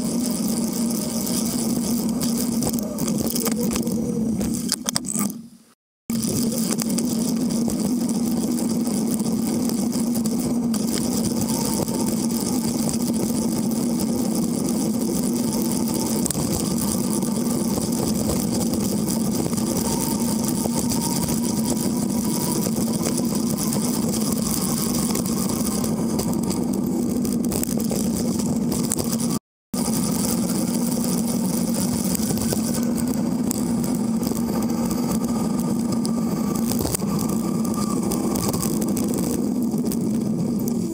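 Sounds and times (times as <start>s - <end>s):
bicycle tyre rolling: 0.0s - 5.2s, 6.1s - 40.9s
wind on microphone: 6.1s - 40.9s.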